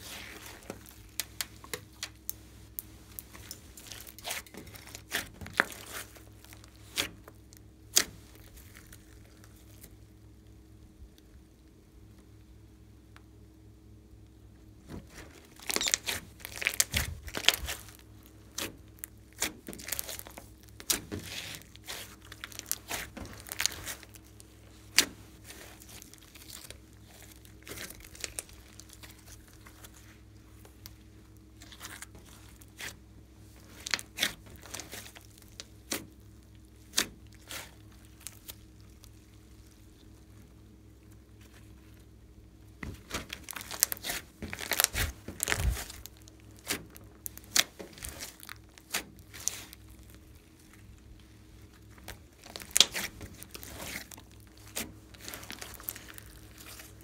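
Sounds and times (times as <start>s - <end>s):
slime squishing with sticky pops: 0.0s - 11.5s, 14.8s - 57.0s.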